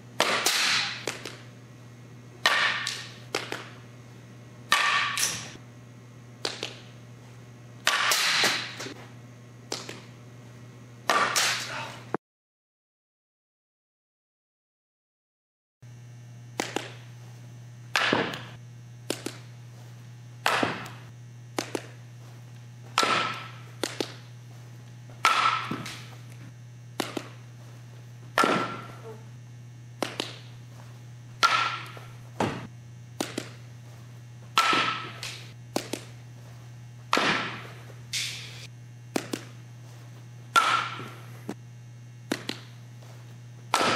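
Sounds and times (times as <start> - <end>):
bat cracking on softball: 0.2 - 1.6, 2.4 - 3.8, 4.7 - 5.6, 6.4 - 7.0, 7.8 - 9.0, 9.6 - 10.2, 11.0 - 11.8, 16.5 - 17.2, 17.9 - 19.6, 20.4 - 22.2, 22.8 - 24.4, 25.1 - 29.2, 29.9 - 39.8, 40.4 - 41.6, 42.2 - 43.9
low hum: 15.9 - 43.9.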